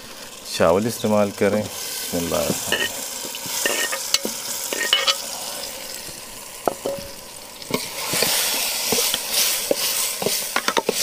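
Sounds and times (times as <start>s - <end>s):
food sizzling in a pot: 0.0s - 11.0s
metal spoon clinking on pot: 2.7s - 2.9s, 3.6s - 5.2s.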